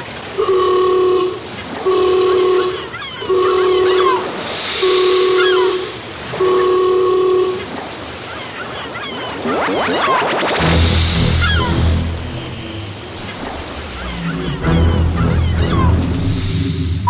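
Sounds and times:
horn blasts: 6.4 - 7.7
faint high chirps: 7.0 - 17.0.

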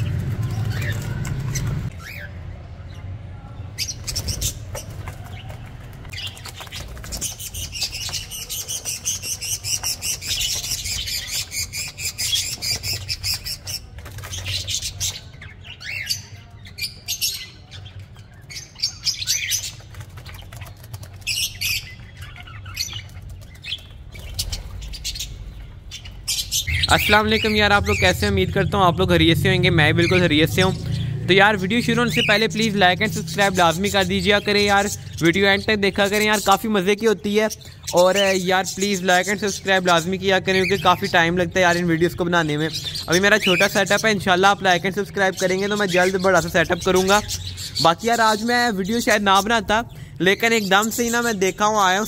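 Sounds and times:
budgerigars chirping: 3.8 - 52.0
low steady rumble: 25.4 - 31.7.

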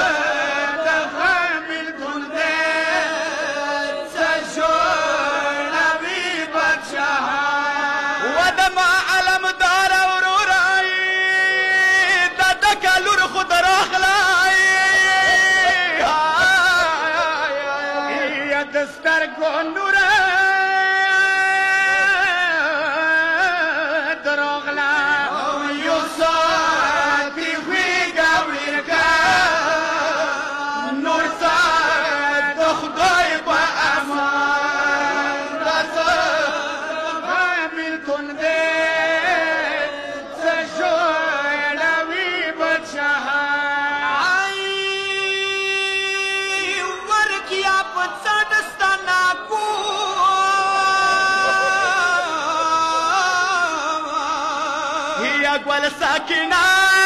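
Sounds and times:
man chanting a lament: 0.0 - 57.0.

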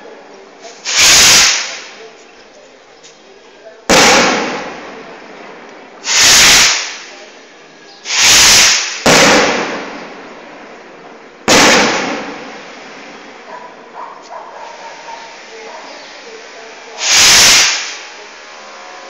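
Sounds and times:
firework bangs echoing: 0.8 - 2.0, 3.9 - 7.2, 8.1 - 14.0, 17.0 - 18.2.

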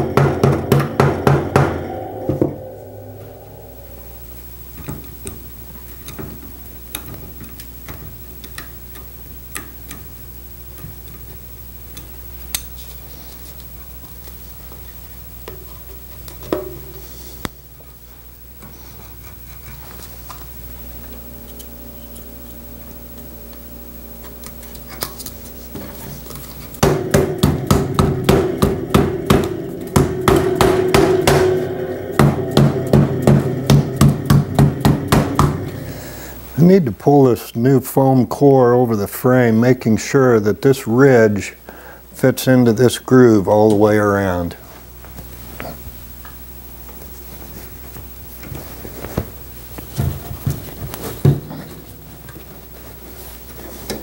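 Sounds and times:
rubber mallet strikes: 0.0 - 4.1, 21.4 - 36.1
low steady hum: 0.0 - 45.8.

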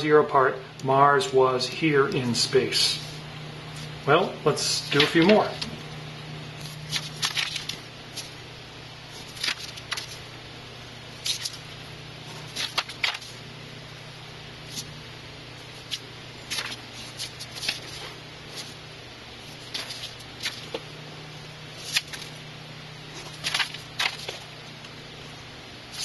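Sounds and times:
steady low hum: 0.0 - 26.0
paper rustling: 4.8 - 5.8, 6.6 - 8.4, 9.1 - 10.2, 11.2 - 11.6, 12.2 - 13.4, 14.6 - 14.9, 15.6 - 18.8, 19.4 - 20.9, 21.7 - 22.4, 23.1 - 24.6.

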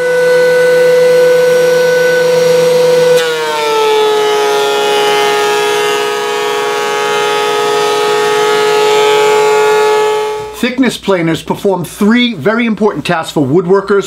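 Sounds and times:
planer cutting wood: 0.0 - 10.6
thickness planer whining: 0.0 - 10.6.

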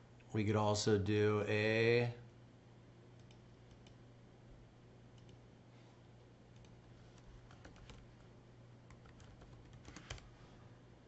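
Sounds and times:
computer mouse clicks: 3.2 - 4.0, 5.1 - 5.4, 6.5 - 8.1
keyboard typing: 6.5 - 8.2, 8.9 - 10.3.

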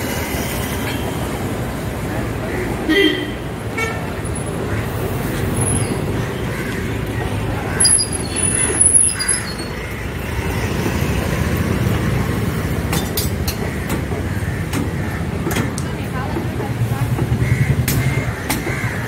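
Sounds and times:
passing vehicles rumble: 0.0 - 19.0
high squeaks: 7.8 - 9.8.

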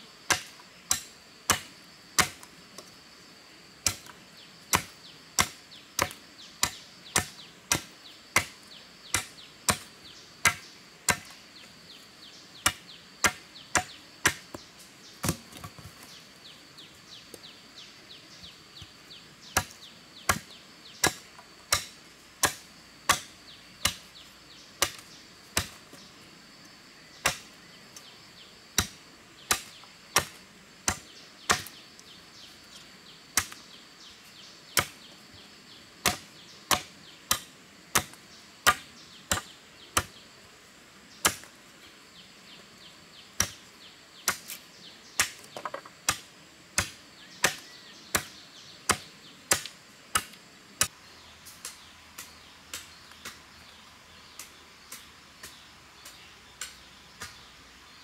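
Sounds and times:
machete chopping bamboo: 0.3 - 2.8, 3.8 - 11.4, 12.6 - 14.6, 15.2 - 15.8, 19.5 - 24.1, 24.8 - 26.1, 27.2 - 27.5, 28.8 - 31.8, 33.4 - 33.6, 34.8 - 35.0, 36.0 - 40.2, 41.2 - 41.5, 43.4 - 43.6, 44.2 - 44.6, 45.2 - 51.0, 51.6 - 53.4, 54.3 - 57.4.

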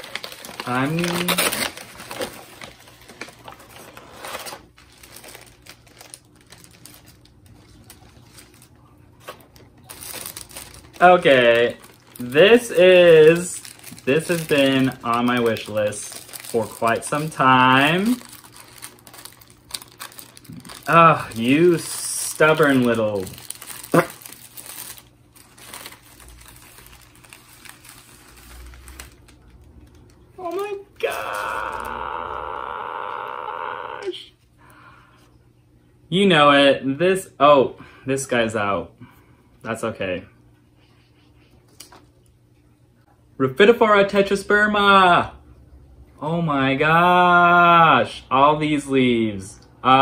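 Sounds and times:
paper and plastic rustling: 0.0 - 30.8
plastic bag crinkling: 0.0 - 33.4.

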